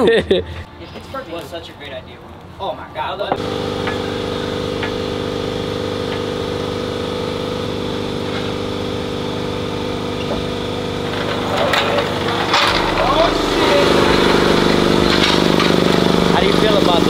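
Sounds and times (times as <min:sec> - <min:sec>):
engine idling: 0:03.4 - 0:17.0.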